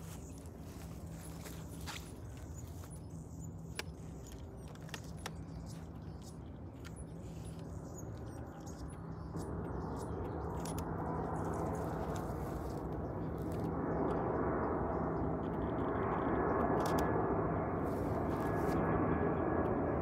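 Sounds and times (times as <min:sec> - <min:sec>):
jet airliner engine noise: 0:00.0 - 0:20.0.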